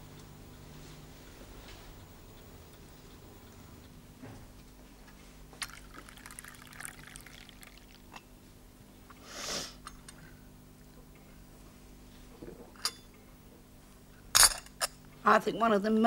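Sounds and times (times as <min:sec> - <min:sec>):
tea pouring into cup: 0:05.6 - 0:08.2.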